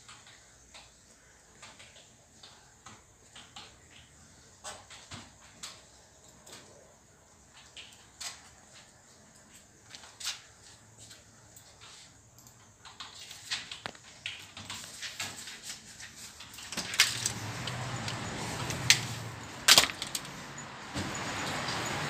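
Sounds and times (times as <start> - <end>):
traffic noise: 13.8 - 22.0.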